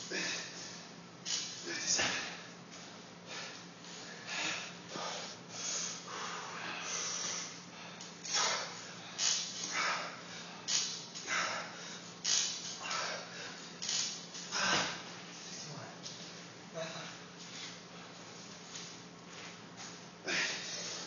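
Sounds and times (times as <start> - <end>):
man breathing hard: 0.0 - 0.9, 3.2 - 12.1, 12.8 - 13.8, 20.2 - 21.0.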